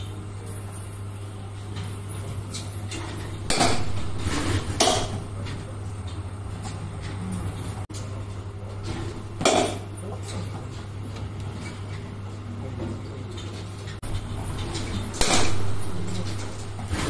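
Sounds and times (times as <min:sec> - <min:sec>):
steady low hum: 0:00.0 - 0:17.0
bat hitting ball: 0:03.5 - 0:05.3, 0:09.4 - 0:09.9.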